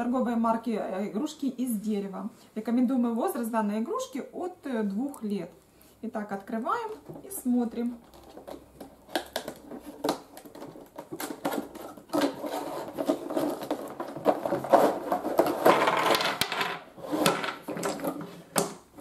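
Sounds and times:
wooden toys clattering onto table: 0:08.1 - 0:18.9.

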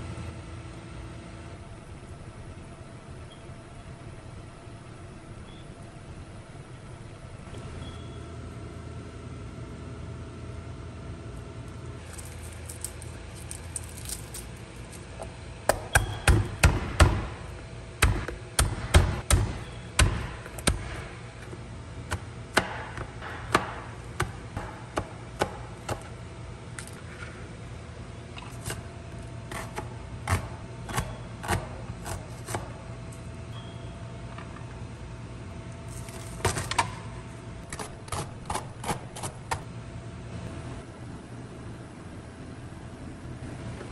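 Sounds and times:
low steady hum: 0:00.0 - 0:43.9
knife chopping on plastic board: 0:15.7 - 0:17.4, 0:18.0 - 0:21.1, 0:22.1 - 0:26.1.

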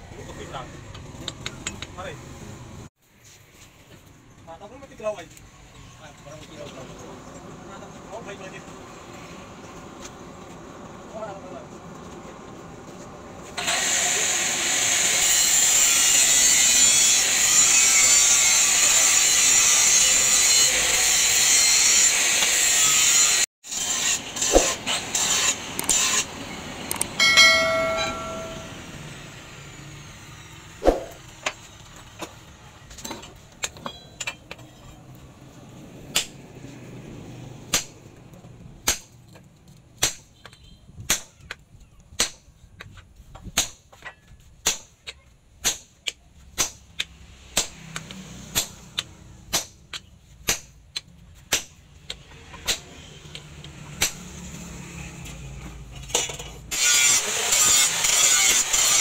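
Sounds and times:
hammer striking hot steel: 0:27.2 - 0:28.8.

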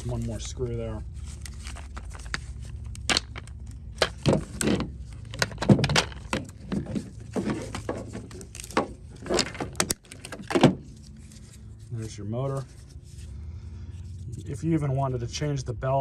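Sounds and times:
hard plastic cracking and snapping: 0:01.5 - 0:10.8.

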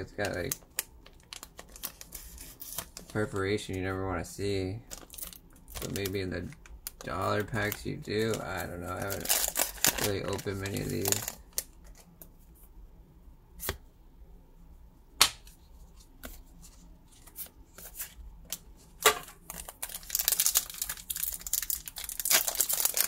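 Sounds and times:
foil wrapper crinkling: 0:00.0 - 0:03.7, 0:04.8 - 0:12.1, 0:19.2 - 0:23.0
card snaps: 0:15.2 - 0:15.6.

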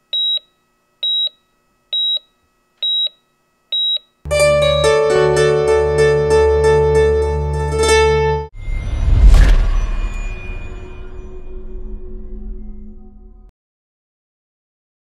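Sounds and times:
electronic piano music: 0:04.3 - 0:08.5.

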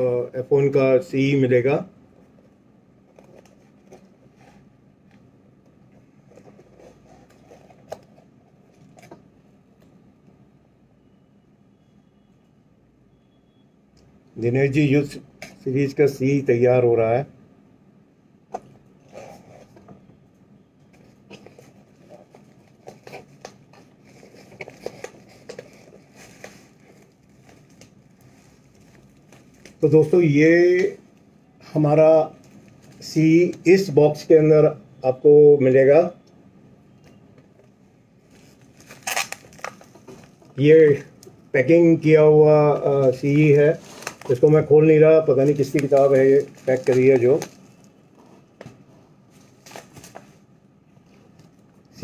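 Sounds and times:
bubble wrap and cardboard rustling: 0:21.0 - 0:31.0, 0:38.3 - 0:41.0, 0:42.6 - 0:48.0, 0:49.3 - 0:50.5.

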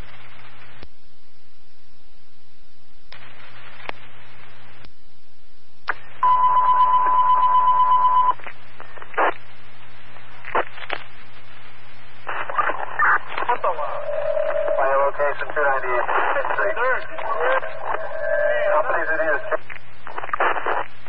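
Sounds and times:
radio static bursts with clicks: 0:00.0 - 0:00.9, 0:03.1 - 0:05.0, 0:05.8 - 0:06.4, 0:08.1 - 0:21.0.

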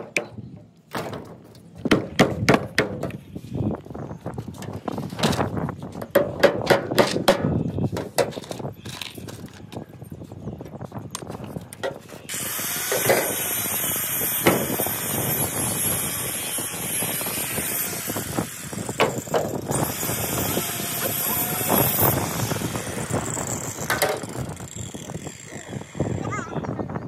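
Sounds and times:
wooden boards knocking and scraping: 0:00.0 - 0:03.2, 0:04.6 - 0:09.6, 0:11.2 - 0:12.3, 0:19.0 - 0:19.7.

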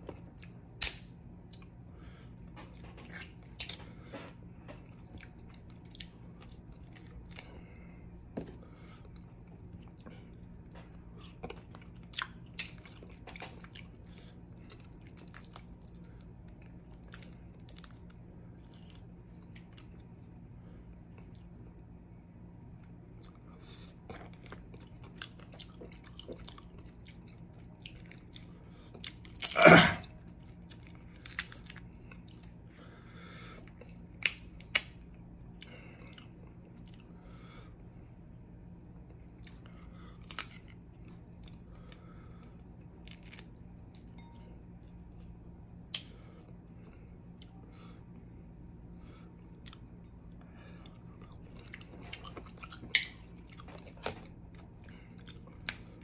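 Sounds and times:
chewing and biting: 0:23.2 - 0:29.6, 0:49.5 - 0:56.0.

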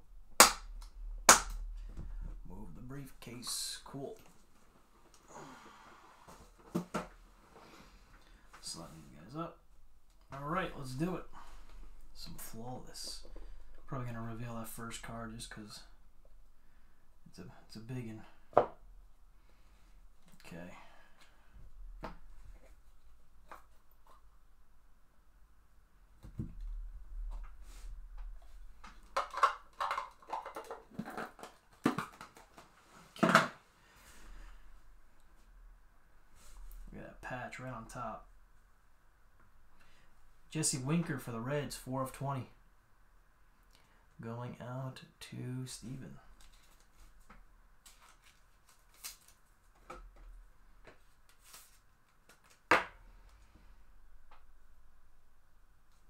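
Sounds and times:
cards handled on a tabletop: 0:50.8 - 0:52.9.

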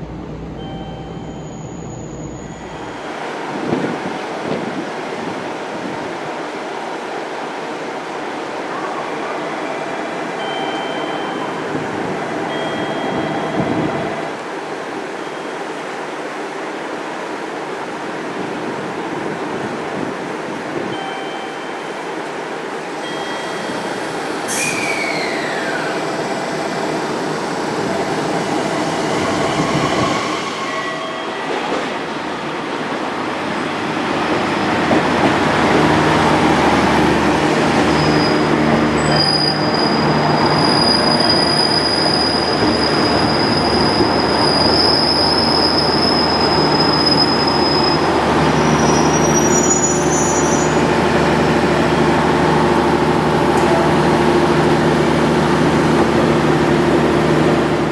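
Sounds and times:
diesel railcar arriving: 0:00.0 - 0:57.9
brake squeal: 0:01.2 - 0:03.1, 0:24.5 - 0:26.2, 0:37.8 - 0:50.9.

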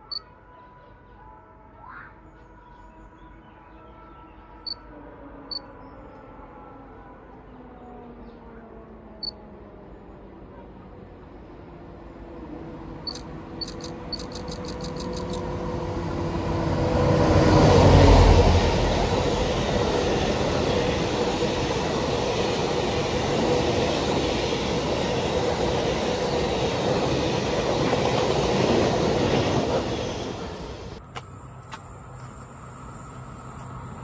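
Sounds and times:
freight train passing: 0:03.8 - 0:34.0.

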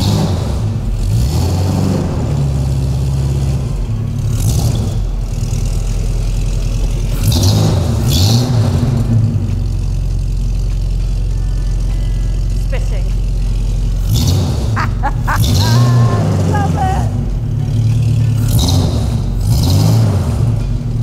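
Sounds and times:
car engine running and revving: 0:00.0 - 0:21.0.

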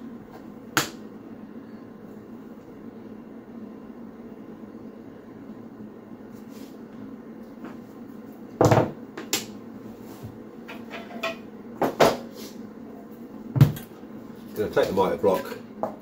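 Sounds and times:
tools knocking on hard floor: 0:08.6 - 0:09.0, 0:13.6 - 0:13.8.

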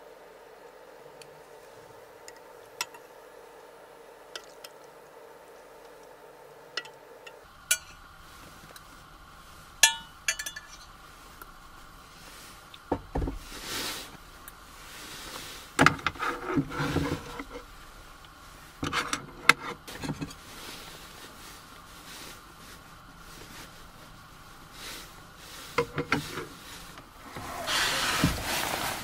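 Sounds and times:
dishes and utensils clinking: 0:07.7 - 0:08.0, 0:09.8 - 0:10.9
rustling scrapes: 0:13.4 - 0:29.0.

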